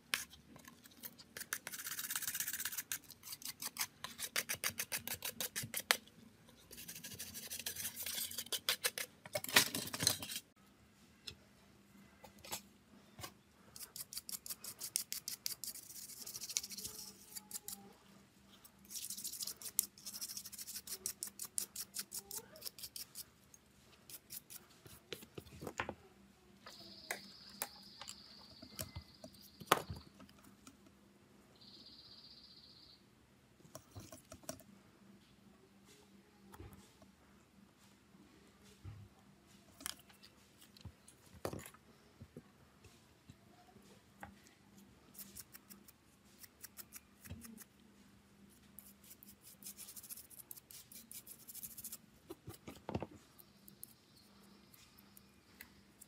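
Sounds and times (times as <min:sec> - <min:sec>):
hand tools scraping a smartphone: 0:06.6 - 0:09.2, 0:13.7 - 0:17.9, 0:18.9 - 0:23.3.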